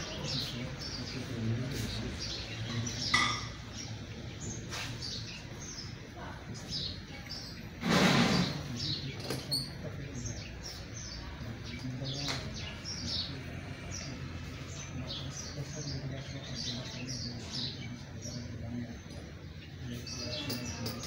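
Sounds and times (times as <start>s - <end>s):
small birds chirping: 0.0s - 21.0s.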